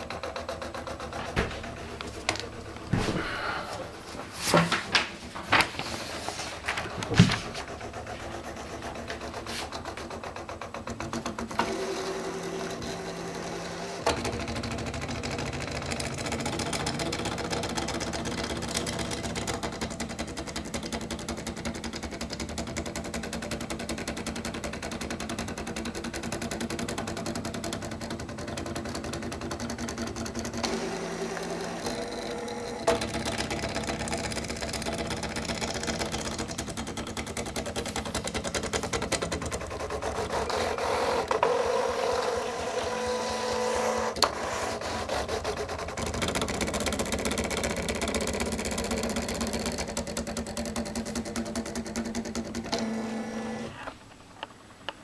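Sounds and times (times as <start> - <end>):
pen plotter motors buzzing: 6.8 - 22.9, 26.7 - 54.0.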